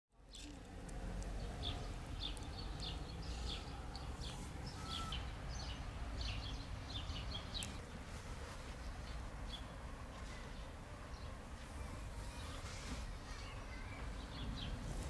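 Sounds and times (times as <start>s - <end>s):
small birds chirping: 0.2s - 15.0s.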